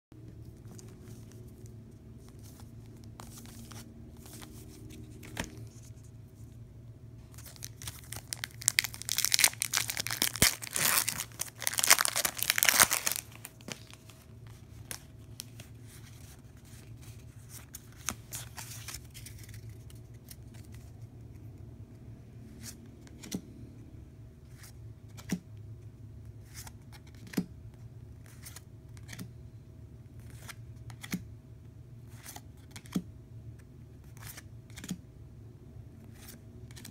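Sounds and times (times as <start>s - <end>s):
low steady hum: 0.2s - 36.9s
plastic pack crinkling and tearing: 7.3s - 14.2s.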